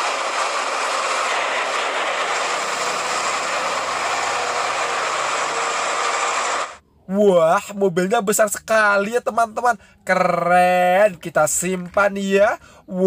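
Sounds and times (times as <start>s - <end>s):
wheel loader engine running: 0.0s - 6.8s.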